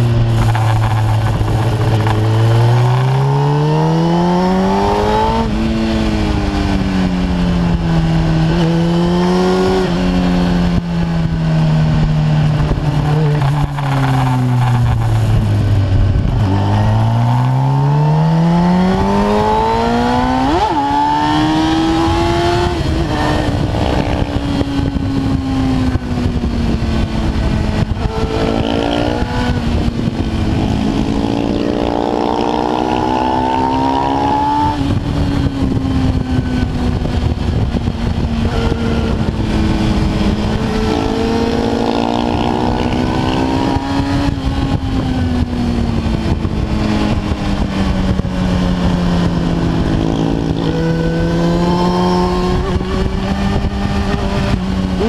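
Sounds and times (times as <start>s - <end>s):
motorcycle engine revving: 0.0s - 55.0s
wind rush on microphone: 0.0s - 55.0s.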